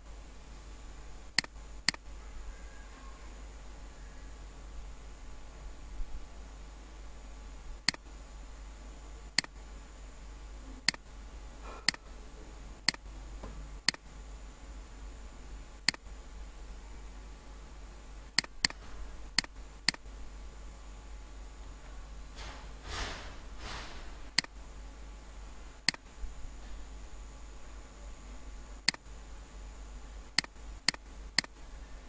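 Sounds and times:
low electrical hum and hiss: 0:00.0 - 0:32.0
computer mouse clicking: 0:01.4 - 0:02.0, 0:07.8 - 0:08.0, 0:09.4 - 0:09.6, 0:13.8 - 0:14.0, 0:15.9 - 0:16.1, 0:18.4 - 0:18.8, 0:19.4 - 0:20.1, 0:24.4 - 0:24.6, 0:30.4 - 0:31.6.

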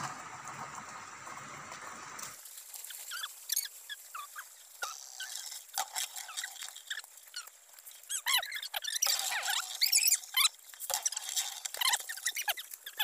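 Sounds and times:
spinning top whirring: 0:00.0 - 0:13.0
high squeaky chirps: 0:02.8 - 0:13.0.

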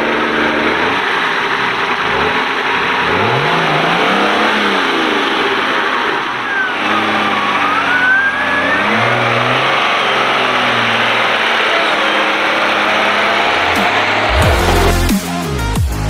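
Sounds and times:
buggy engine revving: 0:00.0 - 0:16.0.

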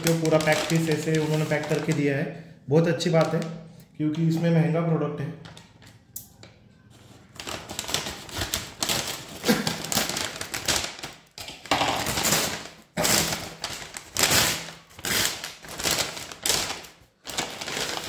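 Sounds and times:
paper bag crinkling and rustling: 0:00.0 - 0:02.1, 0:03.0 - 0:03.6, 0:07.0 - 0:18.0.

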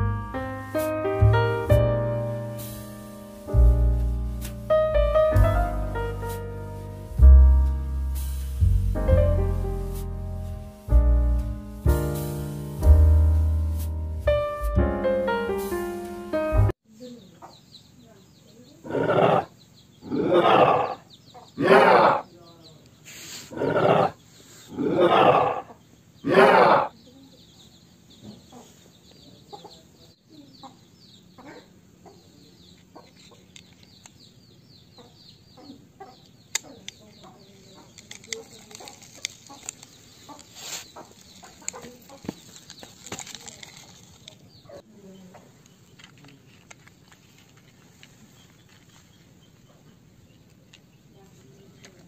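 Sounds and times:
toy vehicles clicking on concrete: 0:36.5 - 0:44.6, 0:45.7 - 0:49.0.

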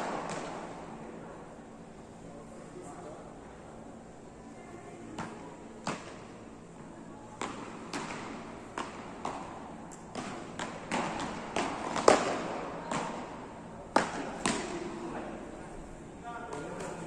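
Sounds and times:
paddles hitting ball: 0:07.4 - 0:15.1.

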